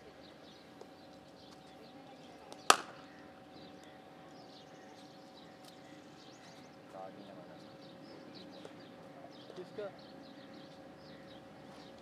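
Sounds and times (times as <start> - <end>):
steady low hum: 0.0 - 12.0
cricket bat striking ball: 2.7 - 3.0.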